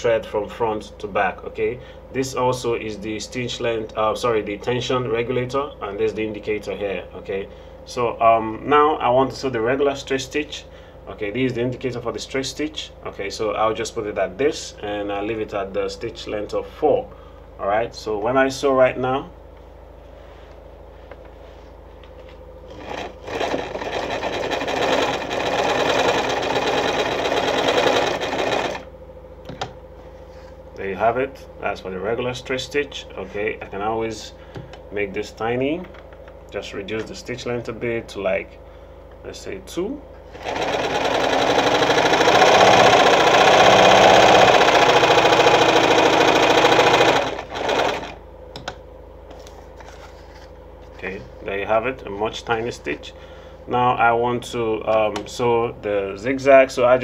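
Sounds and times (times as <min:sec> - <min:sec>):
sewing machine sewing: 0:22.7 - 0:28.9, 0:40.3 - 0:48.2.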